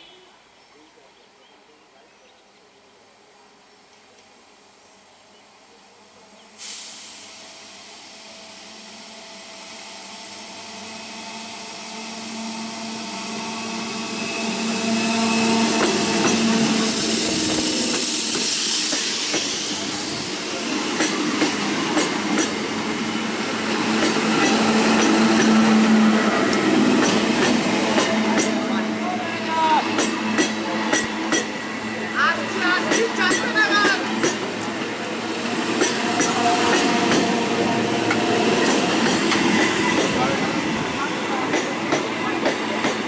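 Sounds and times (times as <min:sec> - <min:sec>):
train rumble with low hum: 0:00.4 - 0:43.0
train hiss: 0:01.7 - 0:43.0.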